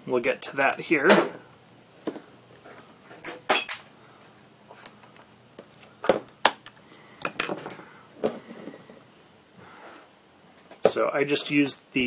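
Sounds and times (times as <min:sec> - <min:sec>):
tools handled on wooden workbench: 0:04.7 - 0:09.0.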